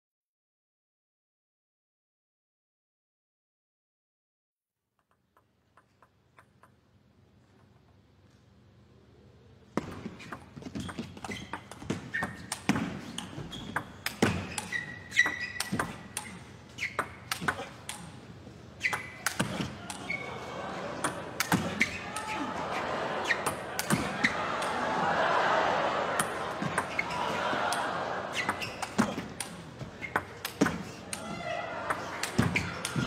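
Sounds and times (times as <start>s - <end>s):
ping pong ball clicking: 5.0s - 6.9s
arena noise: 8.3s - 33.0s
short high squeaks: 14.4s - 17.2s.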